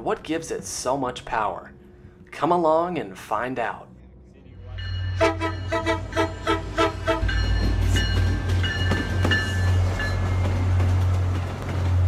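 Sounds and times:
diesel locomotive engine droning: 3.9 - 12.0.

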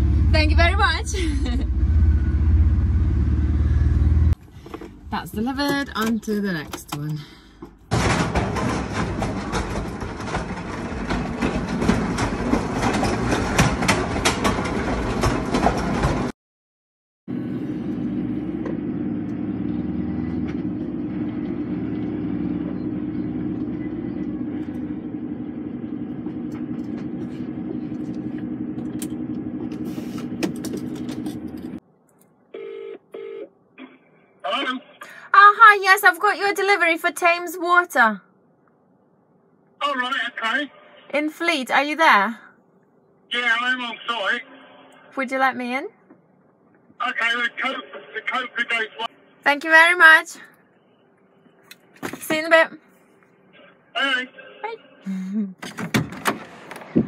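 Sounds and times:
pallet truck wheels rattling on paving: 7.9 - 16.3
diesel engine idling: 17.3 - 31.8.

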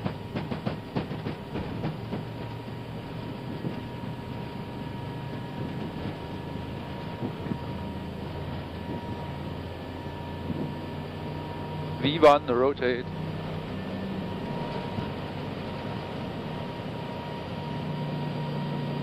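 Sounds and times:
wheels knocking on runway: 0.0 - 4.4
engine and airflow rush: 0.0 - 19.0.

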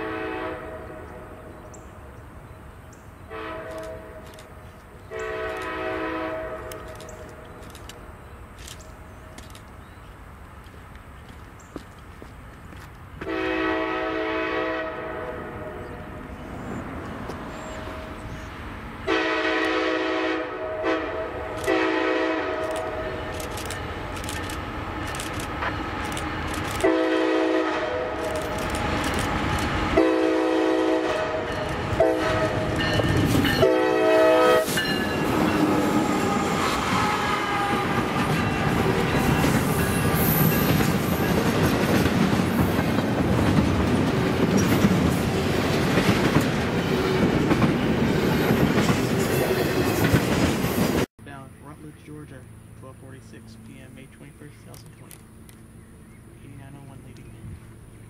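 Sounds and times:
locomotive air horn blasts: 0.0 - 1.4, 3.3 - 4.2, 5.1 - 7.3, 13.2 - 16.2, 19.1 - 23.3, 26.8 - 28.3, 29.9 - 39.4
train wheels rumbling and clicking: 6.6 - 13.3, 22.6 - 27.0, 28.0 - 30.0, 31.4 - 33.8, 34.6 - 51.1.

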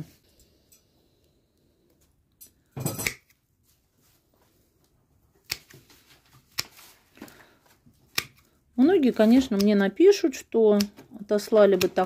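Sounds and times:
secateurs snipping: 9.3 - 9.9.

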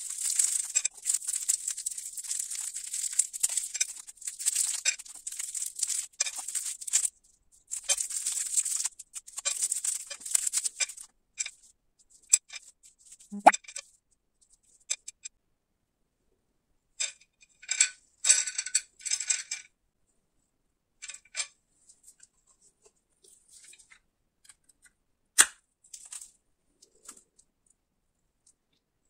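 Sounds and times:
plastic candy wrappers crinkling: 0.0 - 7.1, 7.7 - 11.0.

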